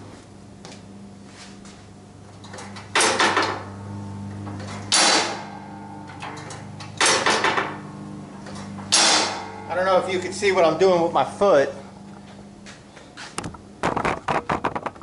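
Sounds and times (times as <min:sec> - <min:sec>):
low steady hum: 0:00.0 - 0:15.0
metallic clank of flap snapping: 0:04.5 - 0:07.8, 0:08.4 - 0:09.7.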